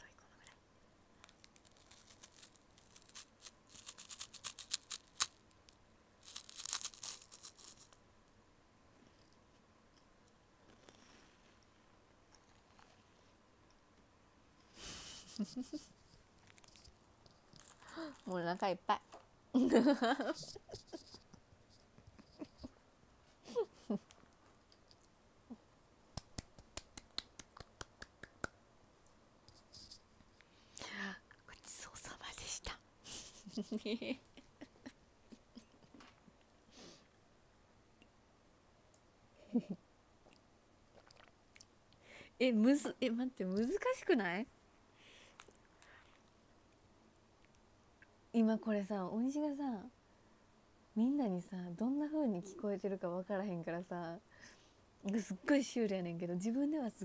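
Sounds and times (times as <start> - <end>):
crunchy snack being chewed: 1.2 - 8.0, 17.4 - 18.3.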